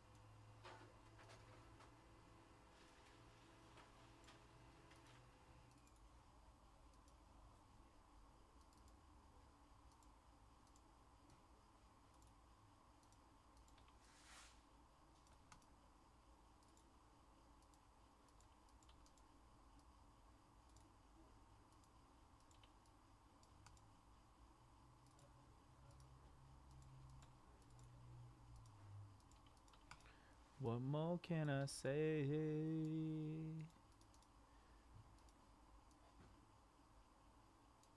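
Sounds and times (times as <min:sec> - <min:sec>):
keyboard and mouse clicks: 0:06.9 - 0:07.2, 0:08.6 - 0:09.0, 0:09.8 - 0:11.4, 0:12.1 - 0:12.4, 0:13.0 - 0:14.0, 0:15.1 - 0:15.7, 0:16.6 - 0:16.9, 0:17.6 - 0:20.0, 0:20.6 - 0:21.0, 0:21.7 - 0:23.9, 0:25.0 - 0:30.2, 0:33.6 - 0:34.3, 0:35.1 - 0:36.2
soft rustle: 0:13.9 - 0:14.8.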